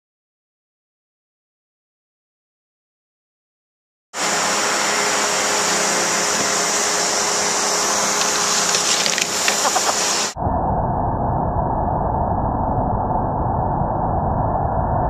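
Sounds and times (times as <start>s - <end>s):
snow fan gun hissing: 4.2s - 10.4s
skis scraping on box: 7.3s - 10.4s.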